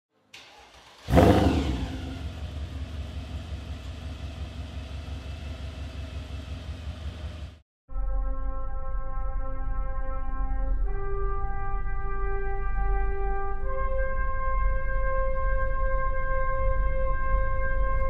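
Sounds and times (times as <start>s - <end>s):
car engine starting and idling: 0.2s - 7.6s.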